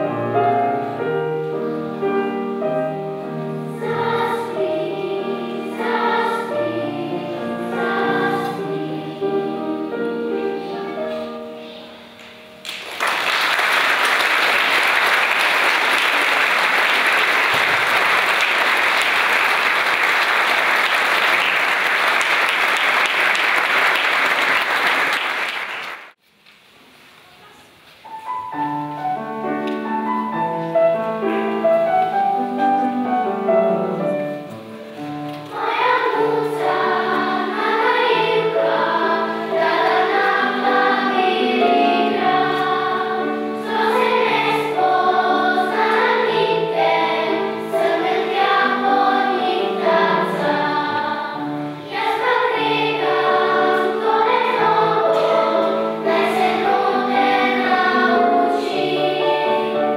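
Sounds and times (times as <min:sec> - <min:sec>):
children's choir singing: 0:00.0 - 0:26.2, 0:28.5 - 0:59.9
audience applauding: 0:12.6 - 0:26.2.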